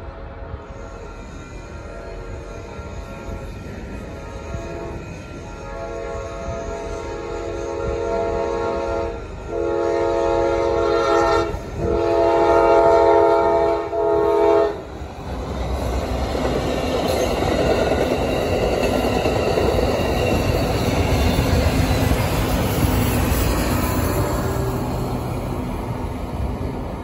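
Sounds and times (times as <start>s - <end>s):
train passing on rails: 0.0s - 27.0s
train air horn blasts: 4.2s - 14.9s.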